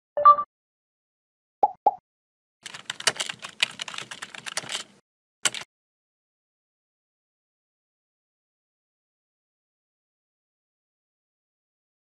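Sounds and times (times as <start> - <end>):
keyboard typing clicks: 2.6 - 5.7.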